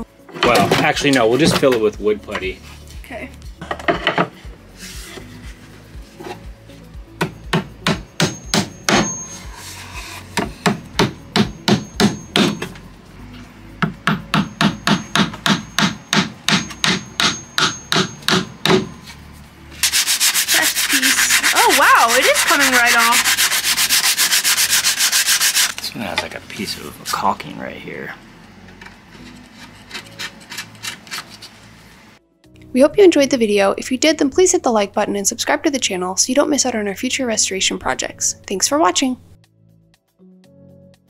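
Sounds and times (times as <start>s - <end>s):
hand sanding with sandpaper: 19.8s - 25.9s.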